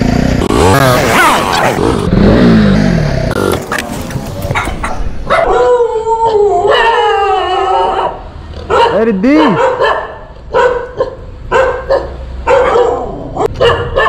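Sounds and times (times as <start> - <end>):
motorcycle engine slowing: 0.0 - 4.8
dog howling: 5.3 - 8.2.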